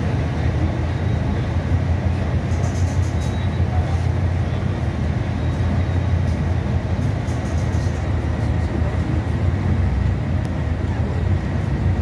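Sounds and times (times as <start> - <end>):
bus diesel engine rumble: 0.0 - 12.0
road noise: 0.0 - 12.0
bus body rattling clicks: 2.4 - 3.6, 6.3 - 8.7.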